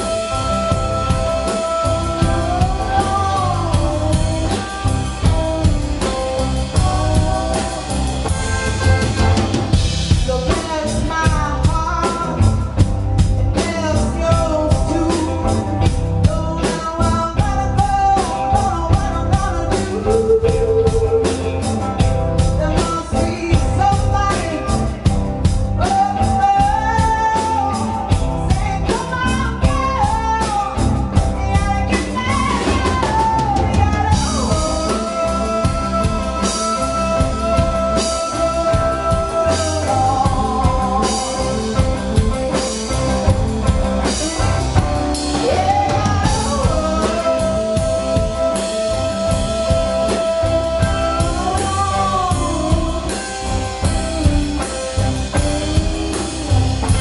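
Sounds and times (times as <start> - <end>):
live band playing: 0.0 - 57.0
woman singing lead: 0.0 - 57.0.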